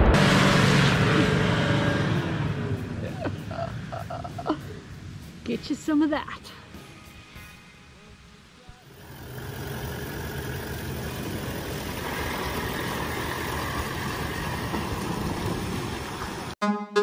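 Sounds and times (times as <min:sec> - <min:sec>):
truck engine driving past: 0:08.8 - 0:16.6.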